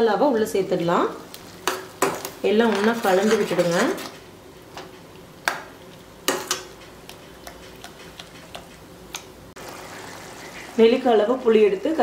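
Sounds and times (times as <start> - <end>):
metal spoon scraping a pan: 1.6 - 4.2.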